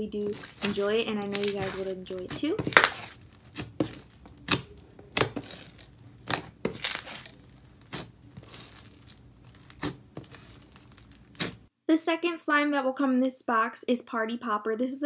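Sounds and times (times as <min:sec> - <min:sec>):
foam slime crunching and crackling: 0:00.0 - 0:11.7.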